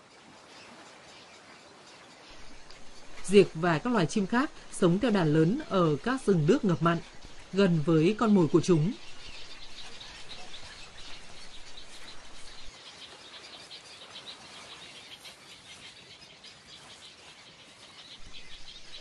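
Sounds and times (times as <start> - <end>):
birds chirping in dense chatter: 0.0 - 19.0.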